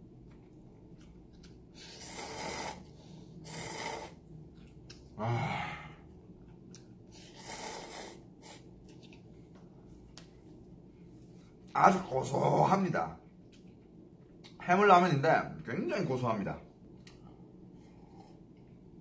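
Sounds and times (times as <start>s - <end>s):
person slurping noodles: 1.8s - 4.2s, 7.2s - 8.6s.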